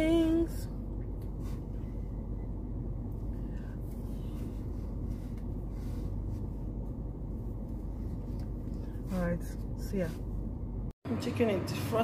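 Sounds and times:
car cabin rumble: 0:00.0 - 0:10.9
fabric rustling: 0:03.8 - 0:10.6.

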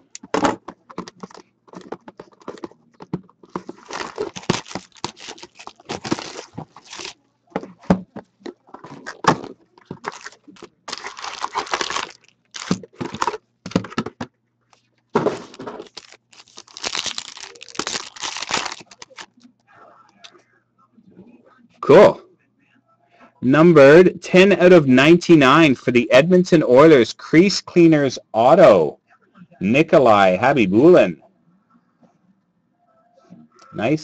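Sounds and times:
foil packs crinkling and ripping: 0:03.6 - 0:07.2, 0:10.0 - 0:13.4, 0:15.2 - 0:19.4
cardboard box tearing: 0:03.7 - 0:07.2, 0:10.0 - 0:13.3, 0:15.4 - 0:19.3.

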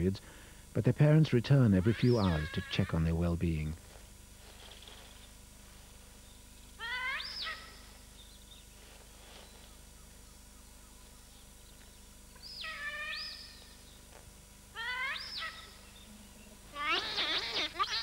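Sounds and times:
otter squealing: 0:16.8 - 0:18.0.

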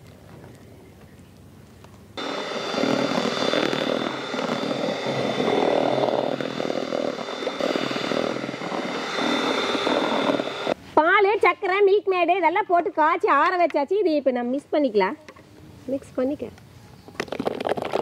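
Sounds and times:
mixer grinder motor whining: 0:02.2 - 0:10.8.

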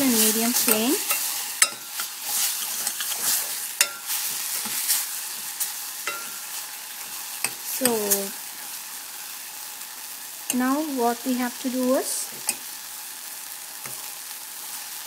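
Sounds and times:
masala sizzling in a pot: 0:00.0 - 0:15.0
ladle clinking against pot: 0:06.1 - 0:06.4.

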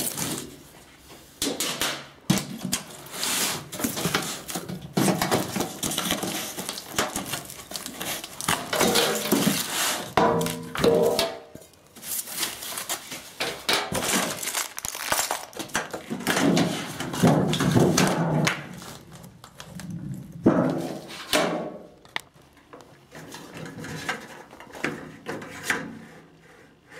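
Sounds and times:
foam sheets rustling and crinkling: 0:02.4 - 0:21.4.

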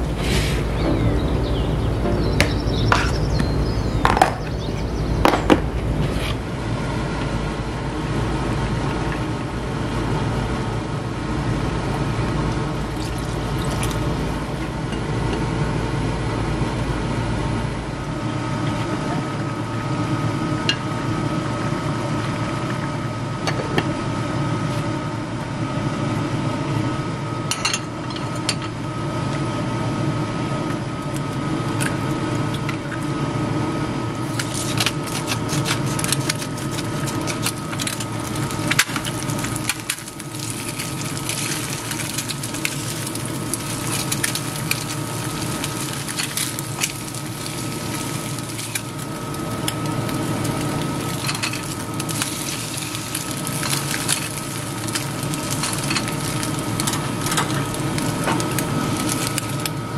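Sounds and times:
soup simmering and bubbling: 0:11.8 - 0:15.5, 0:34.2 - 0:59.9.

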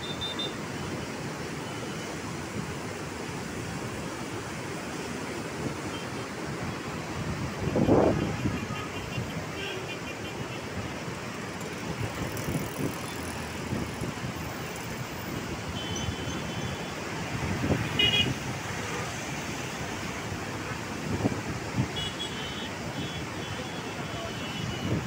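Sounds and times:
river water rushing: 0:00.0 - 0:25.0.

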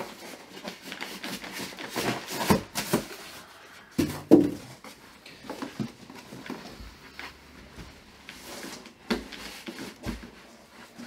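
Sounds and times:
cardboard box rustling and scraping: 0:00.0 - 0:11.0.

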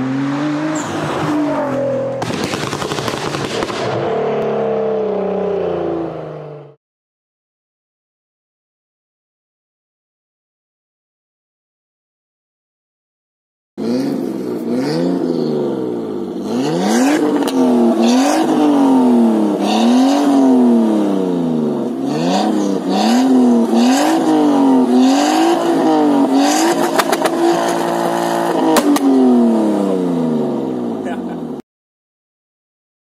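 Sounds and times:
car engine revving: 0:00.0 - 0:06.8, 0:13.8 - 0:31.6.

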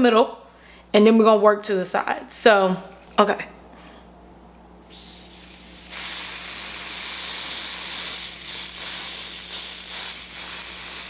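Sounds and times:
aerosol spray hissing: 0:04.9 - 0:11.0.

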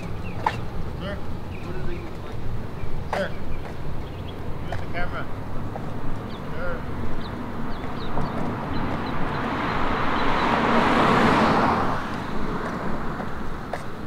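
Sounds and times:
tyre noise: 0:00.0 - 0:14.0
car driving past: 0:03.7 - 0:14.0.

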